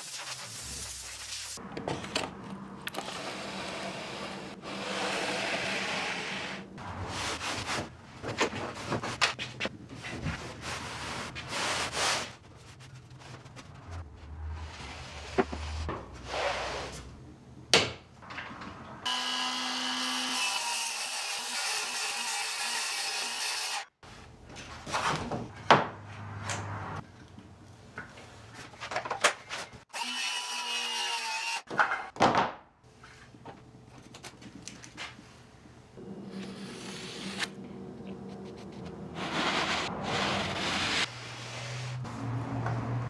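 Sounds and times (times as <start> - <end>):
scraping and rubbing wood: 38.3 - 42.0.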